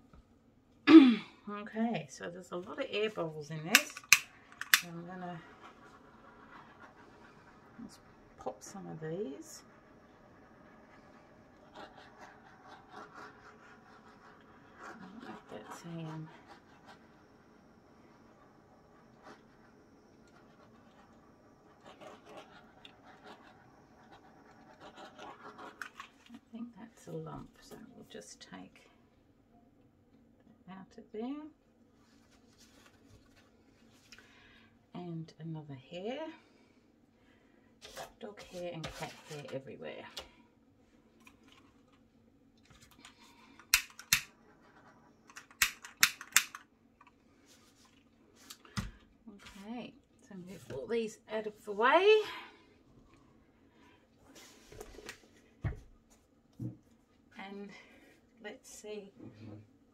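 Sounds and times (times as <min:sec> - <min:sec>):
butane torch igniter clicks: 0:03.8 - 0:04.9.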